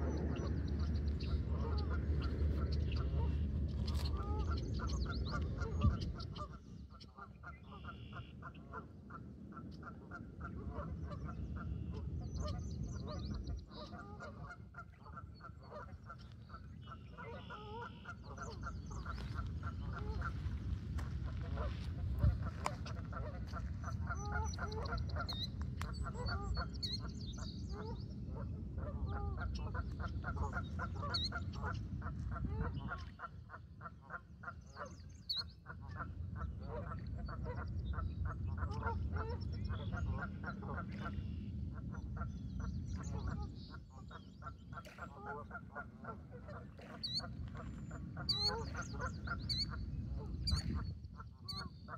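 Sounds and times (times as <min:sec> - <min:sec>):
low rumble: 0:00.0 - 0:06.7, 0:18.2 - 0:33.2
waterfowl honking: 0:00.0 - 0:27.0, 0:27.7 - 0:42.4, 0:43.0 - 0:51.9.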